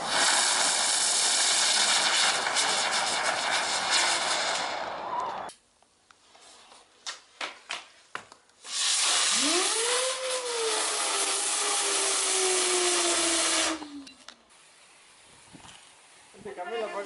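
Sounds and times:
firework hissing whistle: 0:00.0 - 0:05.5, 0:08.6 - 0:15.2.

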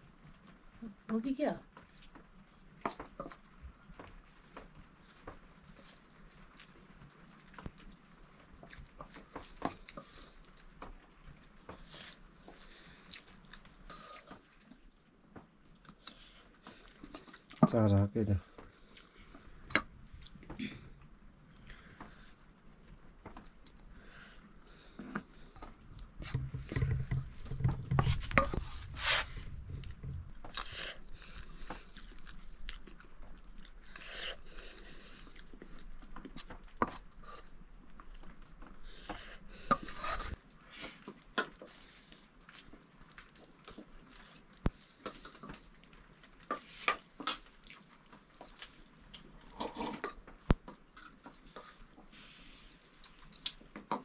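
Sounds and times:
chewing: 0:01.8 - 0:15.0, 0:15.6 - 0:17.7, 0:18.4 - 0:52.1
low rumble: 0:26.6 - 0:30.4.

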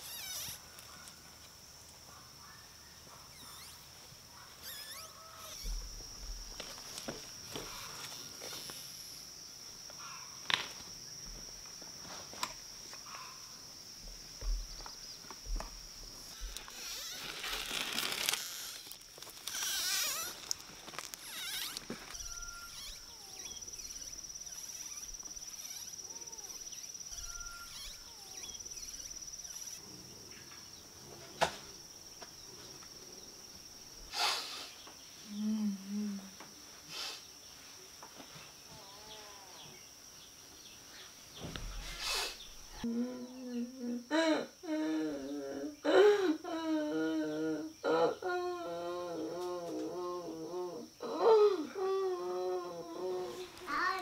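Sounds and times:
high-pitched insect drone: 0:00.0 - 0:00.8, 0:03.3 - 0:04.0, 0:04.6 - 0:30.0
bird chirps: 0:21.3 - 0:29.8.

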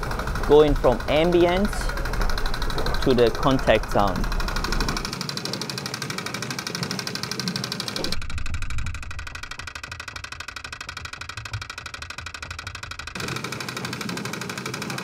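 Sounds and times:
station hiss: 0:00.0 - 0:05.2
escalator mechanical clicking: 0:00.0 - 0:15.0.

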